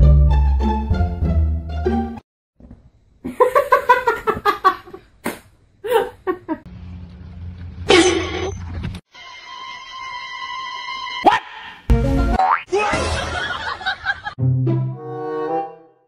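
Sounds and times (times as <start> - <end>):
person laughing: 5.8 - 6.7.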